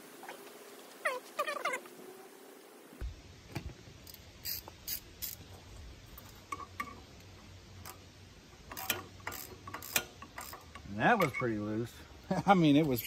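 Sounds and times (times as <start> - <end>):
wrench clicking on metal fitting: 8.6 - 11.4.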